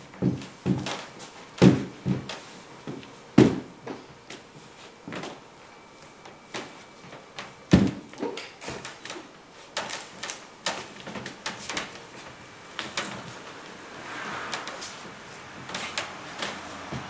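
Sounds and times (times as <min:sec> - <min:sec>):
footsteps on wooden platform: 0:00.1 - 0:04.4.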